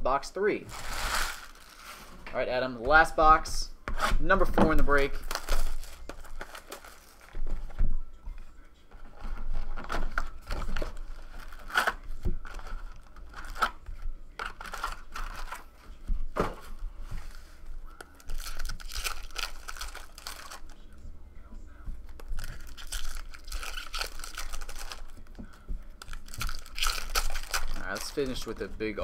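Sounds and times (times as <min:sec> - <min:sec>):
foil packs tearing and crinkling: 0:00.7 - 0:02.1, 0:05.0 - 0:07.4, 0:09.8 - 0:13.8, 0:18.2 - 0:20.8, 0:22.2 - 0:25.2, 0:26.0 - 0:28.7.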